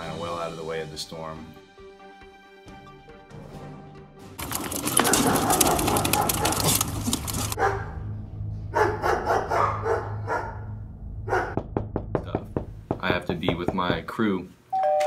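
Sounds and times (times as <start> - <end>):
dog barking: 4.4 - 8.0, 8.7 - 10.7, 11.3 - 11.6
steady low hum: 4.6 - 13.3.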